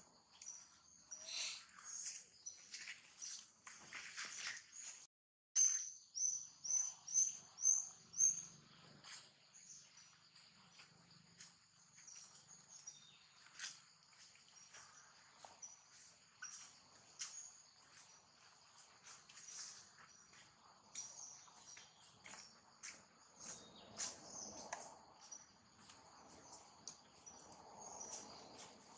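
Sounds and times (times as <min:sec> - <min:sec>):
faint bird calls: 0:01.1 - 0:02.1
insect drone: 0:06.3 - 0:28.9.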